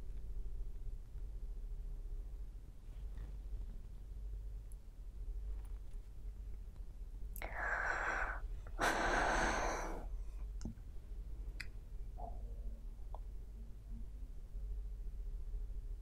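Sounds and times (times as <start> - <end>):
woman breathing in and out: 7.4 - 10.6.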